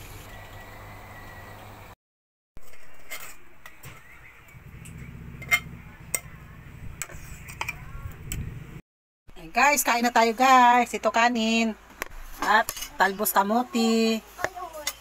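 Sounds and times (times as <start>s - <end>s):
utensils and dishes clinking: 2.6s - 7.9s.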